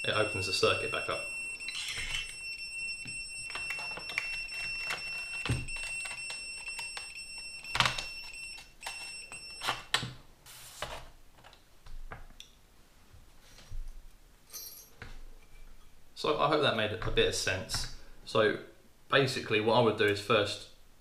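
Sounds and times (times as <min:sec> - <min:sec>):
high continuity tester beep: 0:00.0 - 0:09.9.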